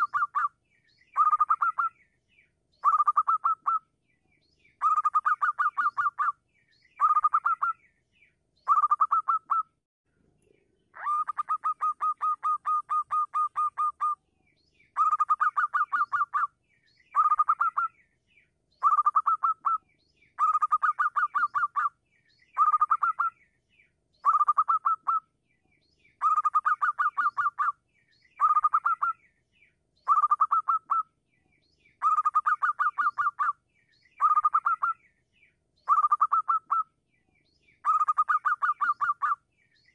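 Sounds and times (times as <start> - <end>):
dove calling in staccato bursts: 0.0 - 2.0, 2.8 - 4.0, 4.8 - 7.8, 8.6 - 9.8, 10.9 - 14.2, 14.9 - 18.1, 18.8 - 23.4, 24.2 - 25.4, 26.2 - 29.3, 30.0 - 31.2, 32.0 - 35.1, 35.8 - 37.0, 37.8 - 39.9.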